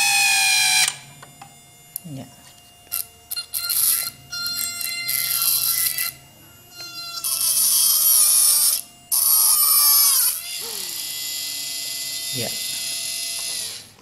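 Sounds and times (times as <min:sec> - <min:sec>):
small motor whine: 0:00.0 - 0:14.0.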